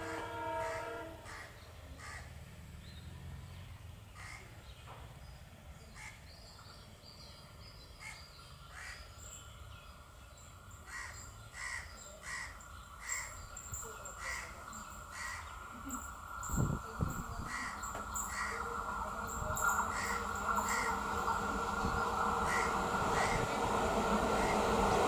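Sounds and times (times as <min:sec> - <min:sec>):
locomotive horn: 0:00.0 - 0:01.5
crows cawing: 0:00.7 - 0:02.3, 0:10.9 - 0:13.3, 0:14.2 - 0:15.6, 0:17.5 - 0:18.7, 0:19.9 - 0:21.2, 0:22.4 - 0:23.5
diesel locomotive rumble: 0:14.1 - 0:25.0.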